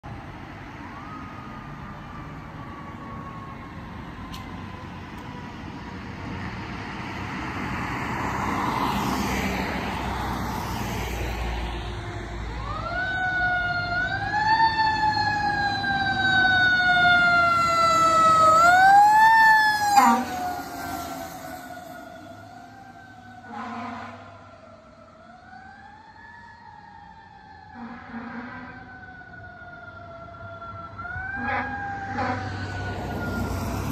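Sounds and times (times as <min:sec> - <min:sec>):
fire truck siren wailing: 0:00.1 - 0:33.9
faint siren tone sliding down: 0:00.8 - 0:06.0, 0:10.2 - 0:33.9.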